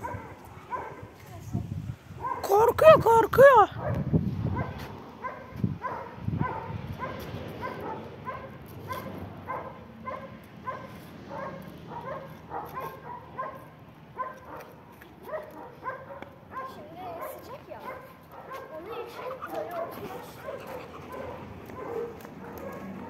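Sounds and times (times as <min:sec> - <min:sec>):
puppy whimpering: 0:19.1 - 0:21.3.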